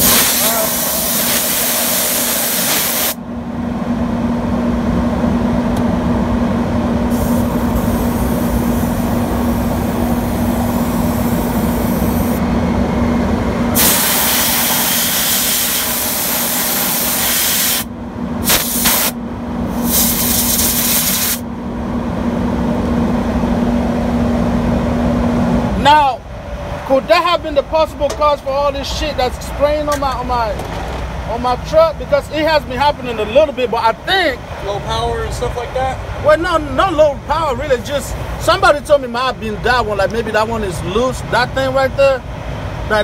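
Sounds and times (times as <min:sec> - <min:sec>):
loud air hiss: 0:00.0 - 0:03.2, 0:07.1 - 0:12.4, 0:13.7 - 0:21.4
diesel engine idling: 0:00.0 - 0:17.2, 0:21.4 - 0:43.0.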